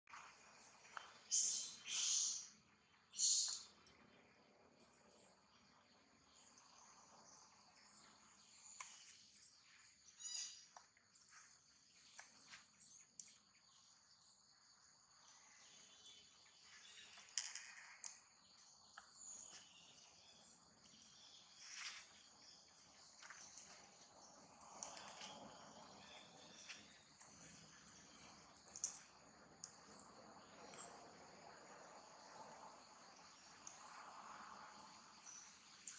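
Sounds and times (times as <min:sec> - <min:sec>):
insect hum: 0:00.1 - 0:35.9.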